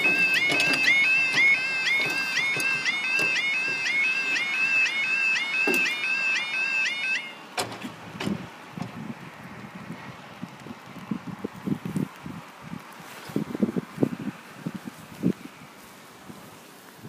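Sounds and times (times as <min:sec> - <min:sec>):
warbling warning alarm: 0:00.0 - 0:07.5.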